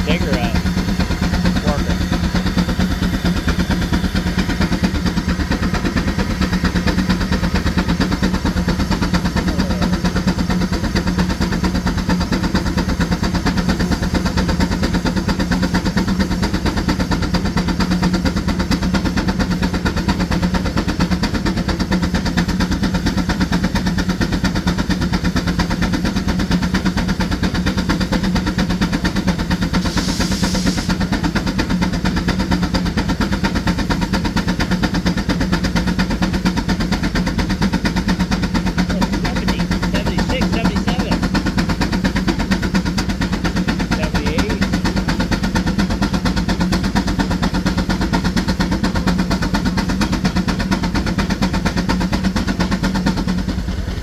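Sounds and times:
steam traction engine running: 0.0s - 54.0s
steam hiss: 29.8s - 31.1s.

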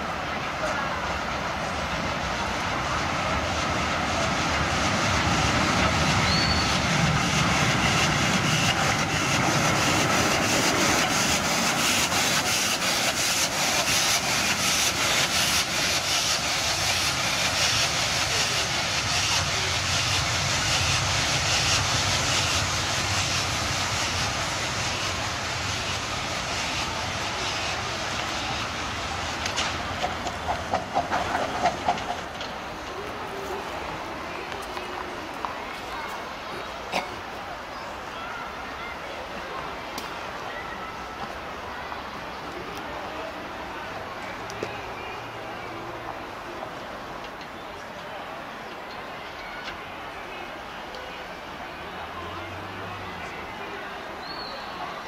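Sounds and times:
steam locomotive chuffing: 0.0s - 34.5s
steam hissing: 0.0s - 34.7s.

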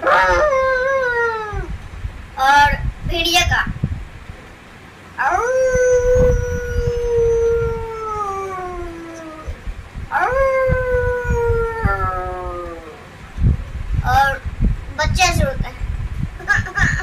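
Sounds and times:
boy imitating wolf howl: 0.0s - 1.8s, 5.2s - 13.1s.

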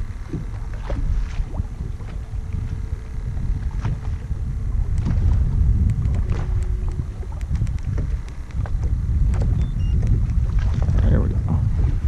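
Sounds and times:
wind buffeting microphone: 0.0s - 12.0s
small clicks and knocks: 5.8s - 10.4s.

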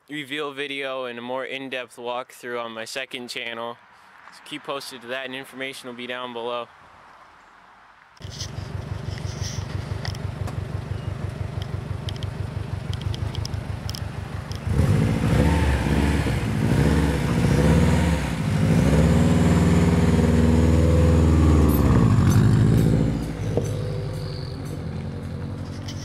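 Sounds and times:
car engine idling and revving: 8.2s - 26.0s.

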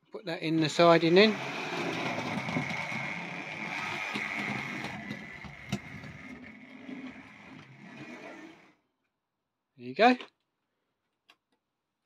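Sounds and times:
model train motor whirring: 0.7s - 8.8s
wheels clicking over rail joint: 1.1s - 8.7s.

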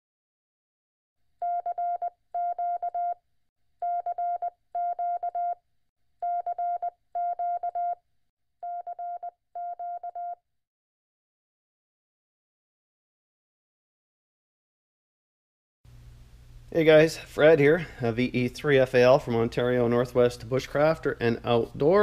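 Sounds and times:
morse code beeps: 1.4s - 3.2s, 3.8s - 5.6s, 6.2s - 8.0s, 8.6s - 10.4s.

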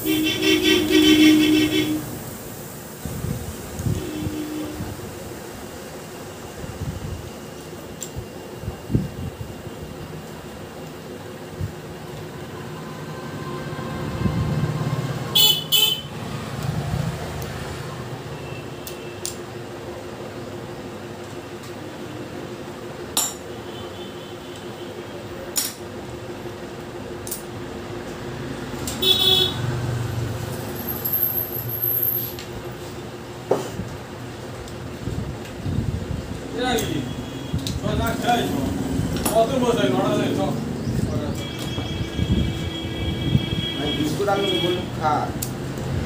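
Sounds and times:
vehicle horn toots: 0.0s - 2.2s, 3.8s - 5.0s, 12.8s - 16.2s, 29.0s - 29.7s, 41.4s - 44.9s
steady hum: 0.0s - 14.4s
traffic rumble: 0.0s - 23.1s, 24.9s - 46.0s.

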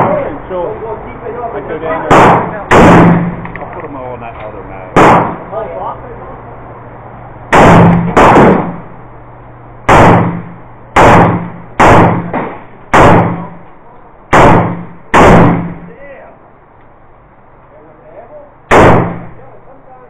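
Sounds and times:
pistol gunshots: 2.0s - 3.6s, 4.9s - 5.5s, 7.5s - 8.8s, 9.9s - 13.6s, 14.3s - 15.9s, 18.7s - 19.4s.

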